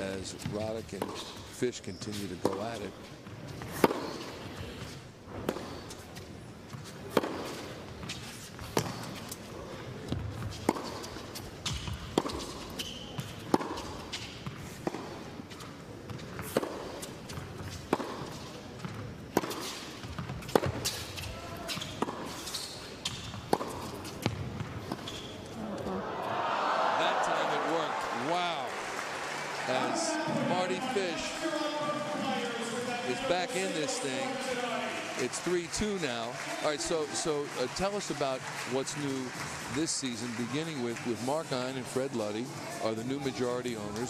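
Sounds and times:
tennis ball struck with rackets: 0:03.6 - 0:04.3, 0:07.1 - 0:07.6, 0:08.6 - 0:09.2, 0:10.0 - 0:15.2, 0:16.1 - 0:25.2.

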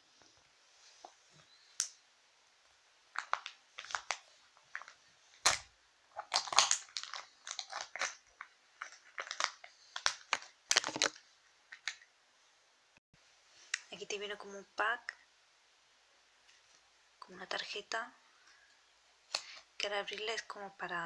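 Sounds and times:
foil seal peeled and torn: 0:04.8 - 0:11.2.

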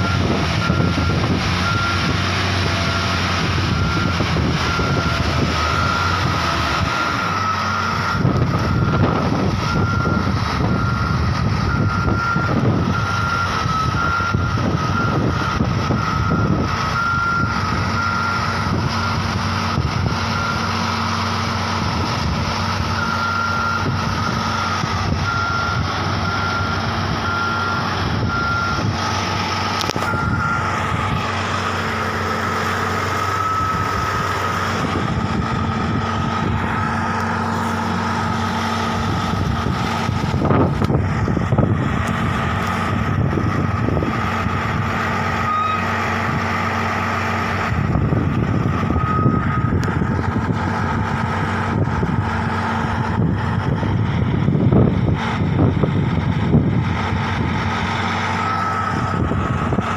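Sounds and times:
warning alarm beeping: 0:00.0 - 0:20.8, 0:29.8 - 0:30.9, 0:32.2 - 0:38.4
crane engine running: 0:00.0 - 0:59.9.

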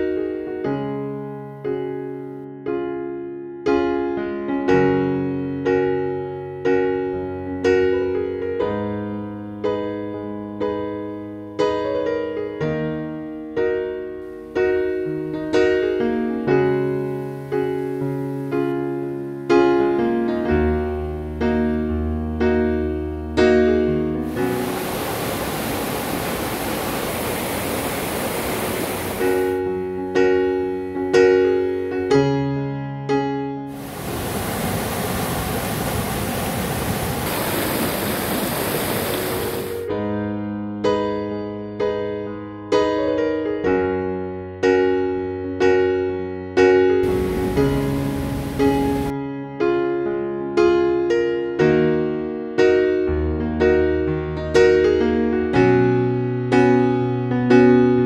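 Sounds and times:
piano music: 0:00.0 - 0:58.0
steady rushing noise: 0:24.3 - 0:29.6, 0:33.7 - 0:39.9, 0:47.0 - 0:49.1.

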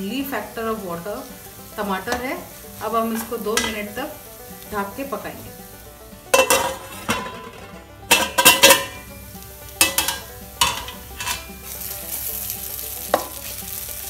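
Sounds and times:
masala sizzling: 0:00.0 - 0:14.0
spatula scraping a pan: 0:00.4 - 0:14.0.

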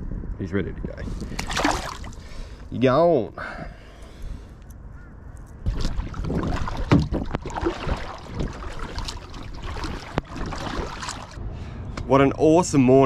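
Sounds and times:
water splashing around kayak: 0:01.3 - 0:02.3, 0:05.6 - 0:11.4.

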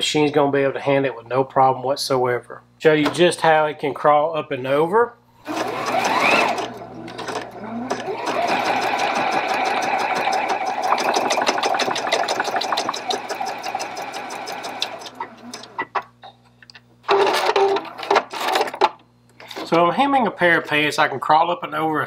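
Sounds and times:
sewing machine stitching: 0:05.4 - 0:15.8.

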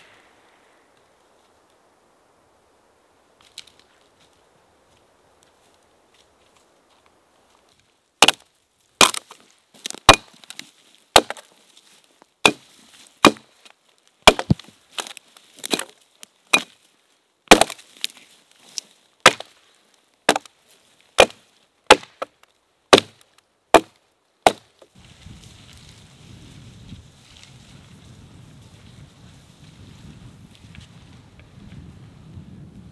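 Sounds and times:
axe chopping log: 0:08.2 - 0:11.5, 0:12.4 - 0:13.5, 0:14.2 - 0:16.8, 0:17.5 - 0:18.1, 0:19.2 - 0:19.6, 0:20.3 - 0:20.5, 0:21.2 - 0:24.9.

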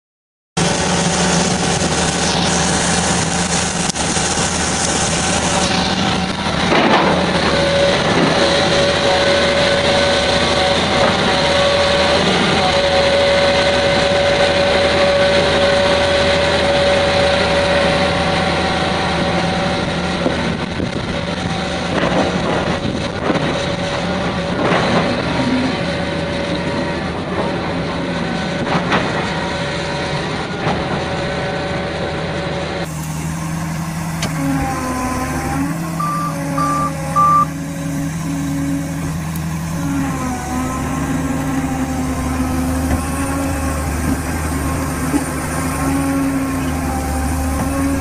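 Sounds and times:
excavator diesel engine running: 0:00.6 - 0:48.0
high-pitched whine: 0:34.2 - 0:38.4.

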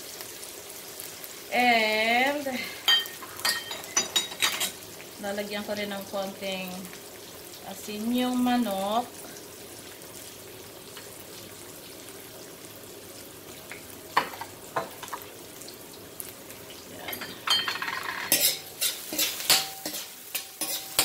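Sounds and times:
garlic and onions sizzling in a pan: 0:00.0 - 0:21.0
utensil stirring the pan: 0:17.0 - 0:21.0.

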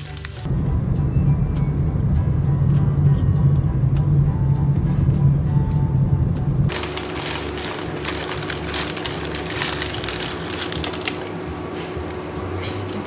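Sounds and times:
plastic packet crinkling: 0:00.0 - 0:00.5, 0:06.7 - 0:11.4.

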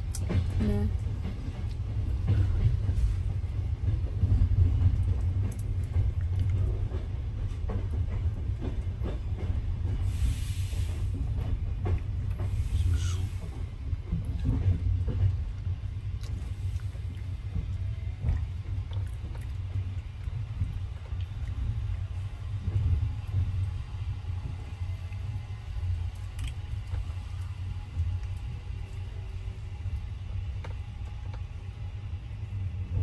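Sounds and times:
train coach rumble: 0:00.0 - 0:33.0.

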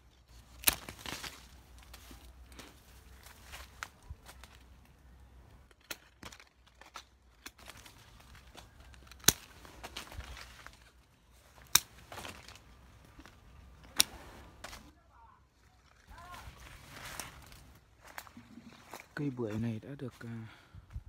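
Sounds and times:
leaves rustling: 0:00.0 - 0:20.2
pruning shears snipping: 0:00.3 - 0:02.8, 0:05.7 - 0:14.9.

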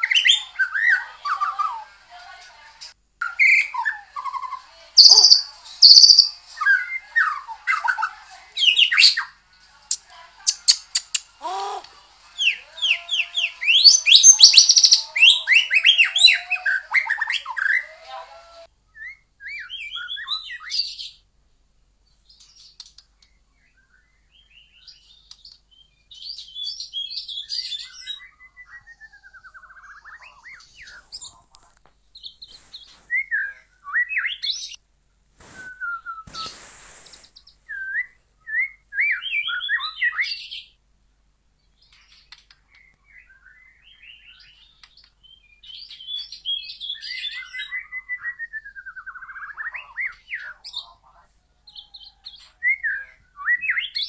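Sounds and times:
bird singing varied song: 0:03.2 - 0:08.0, 0:12.4 - 0:17.9, 0:18.9 - 0:21.2, 0:22.0 - 0:31.4, 0:32.1 - 0:34.8, 0:35.8 - 0:40.8, 0:41.6 - 0:51.0, 0:51.6 - 0:54.0.

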